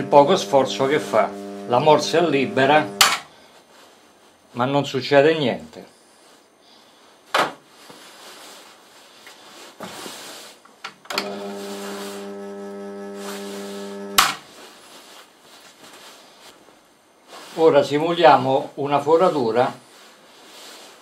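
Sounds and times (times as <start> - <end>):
drill press motor humming: 0.0 - 3.2, 11.1 - 14.4.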